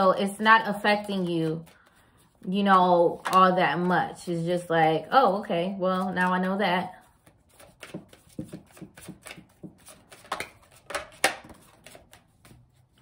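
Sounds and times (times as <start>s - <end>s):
cards being shuffled: 7.1s - 13.0s.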